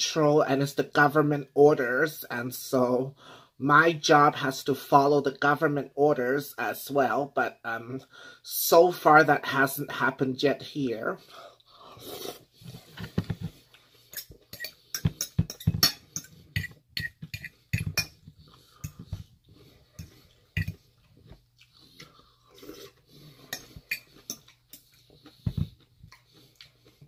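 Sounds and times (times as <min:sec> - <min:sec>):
fork scraping ceramic bowl: 0:14.1 - 0:20.8, 0:22.6 - 0:25.6
chewing and mouth noises: 0:16.3 - 0:27.0.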